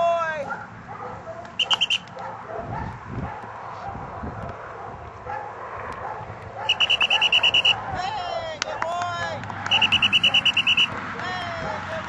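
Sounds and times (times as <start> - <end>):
low wind rumble: 0.0 - 12.0
high whistle toots: 1.6 - 2.1, 6.7 - 7.8, 9.7 - 11.0.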